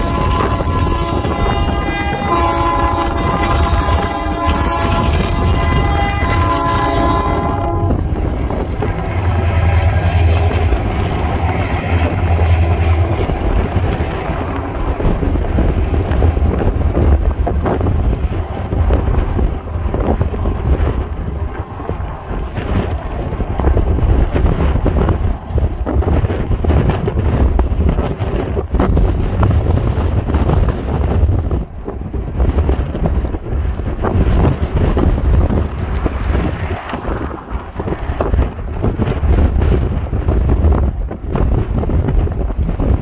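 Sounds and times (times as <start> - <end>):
locomotive air horn: 0.0 - 10.9
freight train wagons rumbling: 0.0 - 43.0
wind buffeting microphone: 0.0 - 43.0.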